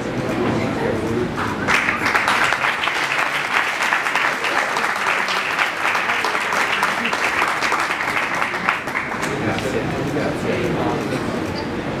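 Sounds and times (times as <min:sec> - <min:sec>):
audience clapping: 0:01.4 - 0:10.1.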